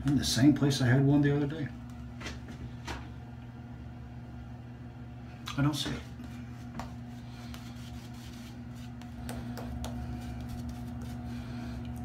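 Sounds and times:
steady low hum: 0:00.0 - 0:12.0
shaving brush strokes: 0:06.2 - 0:11.6.

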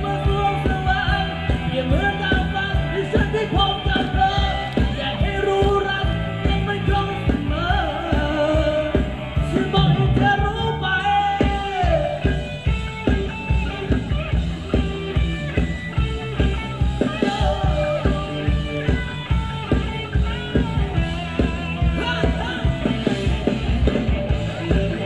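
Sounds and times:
person singing: 0:00.0 - 0:12.5, 0:17.1 - 0:19.0, 0:21.8 - 0:25.0
live band playing dance music: 0:00.0 - 0:25.0
steady drum beat: 0:00.0 - 0:25.0.

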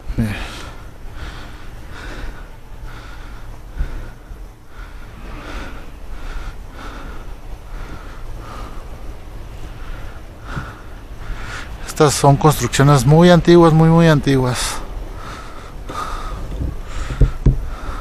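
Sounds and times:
breathing close to microphone: 0:00.3 - 0:11.8, 0:15.1 - 0:18.0.

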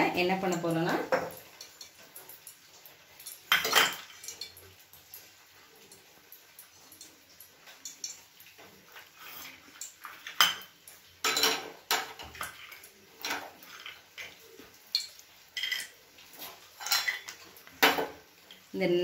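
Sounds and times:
steel kitchenware clinking: 0:10.2 - 0:14.0, 0:16.8 - 0:18.2.

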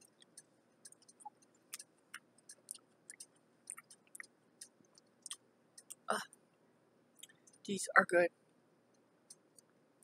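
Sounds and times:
pickle chewing clicks: 0:00.0 - 0:06.0.

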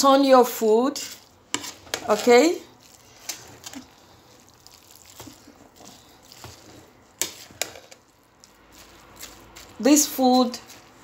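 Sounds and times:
moist rice squishing: 0:00.6 - 0:11.0
spoon scraping and knocking pot: 0:01.0 - 0:02.4, 0:05.2 - 0:08.1.

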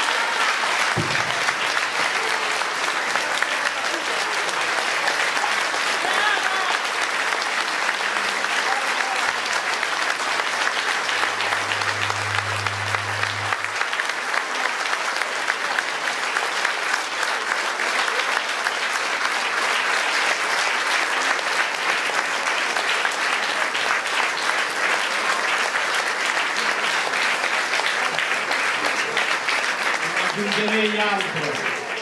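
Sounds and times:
large audience applauding: 0:00.0 - 0:32.0.

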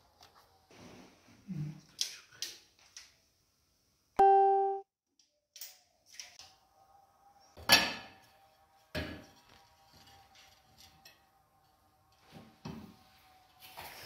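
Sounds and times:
keyboard musical note: 0:04.2 - 0:04.8.

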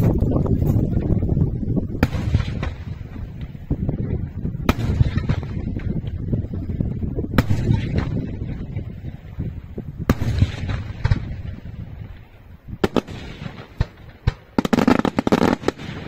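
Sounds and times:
rumble of small fireworks bangs: 0:00.0 - 0:16.0
fireworks loud bangs: 0:02.0 - 0:03.8, 0:04.6 - 0:06.2, 0:10.0 - 0:11.7, 0:12.8 - 0:16.0.

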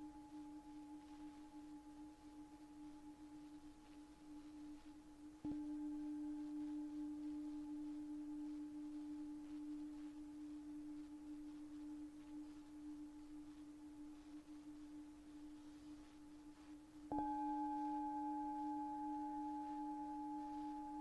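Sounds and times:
metal bowl ringing: 0:17.1 - 0:21.0.

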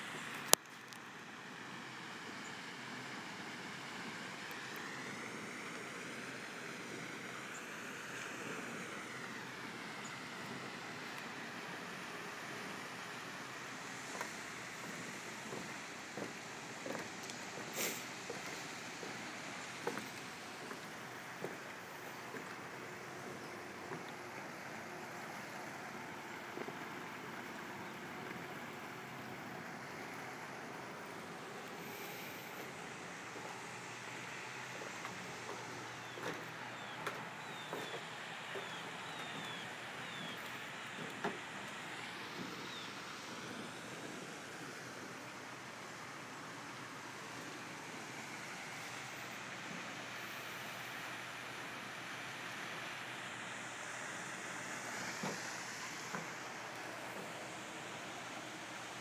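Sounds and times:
rushing outdoor ambience: 0:00.0 - 0:59.0.

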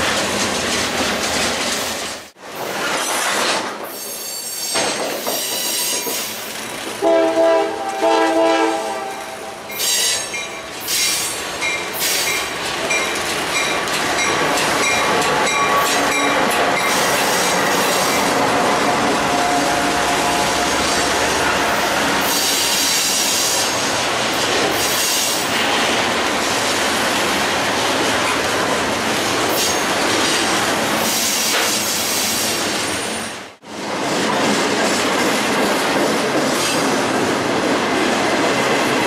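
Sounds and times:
train wheels clattering and squealing: 0:00.0 - 0:06.8, 0:09.7 - 0:26.0, 0:29.4 - 0:33.1, 0:34.1 - 0:37.0
multi-tone train horn blasts: 0:07.0 - 0:09.7, 0:18.2 - 0:22.8.

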